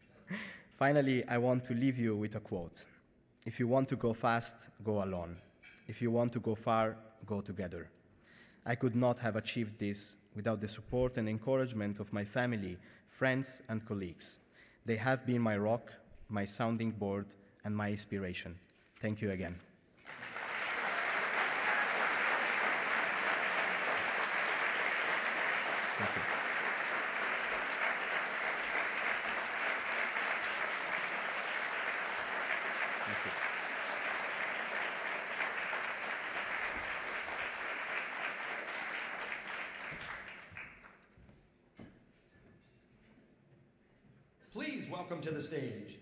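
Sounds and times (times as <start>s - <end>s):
audience applauding: 20.0s - 41.1s.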